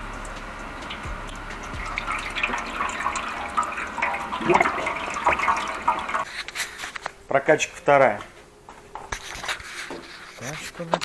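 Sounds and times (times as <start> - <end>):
fluid pouring into funnel: 0.2 - 6.3.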